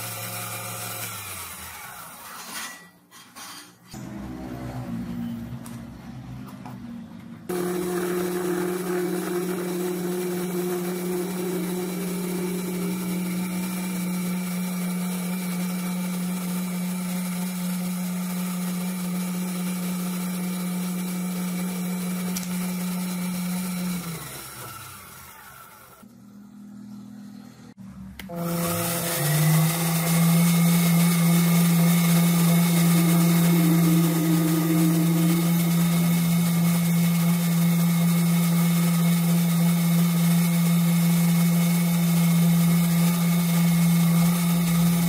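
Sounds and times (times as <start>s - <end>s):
metal lathe motor humming: 7.5s - 16.2s, 28.3s - 45.0s.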